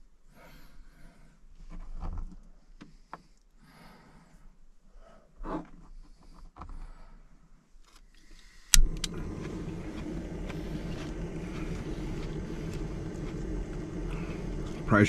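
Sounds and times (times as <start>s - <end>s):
gas burner rushing: 8.6s - 15.0s
stove igniter click: 8.7s - 11.6s.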